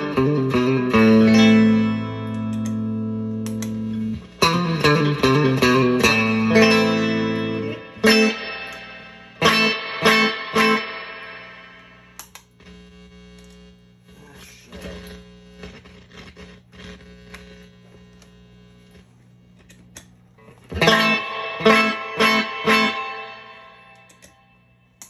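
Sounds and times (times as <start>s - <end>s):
electric guitar with reverb: 0.0s - 12.4s, 20.4s - 25.0s
mains hum: 0.0s - 25.0s
clicks: 2.2s - 2.8s, 3.4s - 4.4s, 12.1s - 13.7s, 24.0s - 24.4s.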